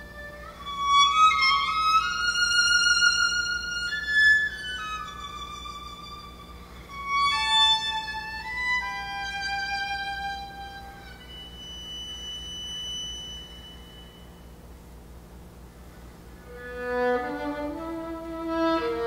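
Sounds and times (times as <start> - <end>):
violin playing slow bowed notes: 0.0 - 14.5, 16.4 - 19.0
high thin held tone: 9.2 - 14.8.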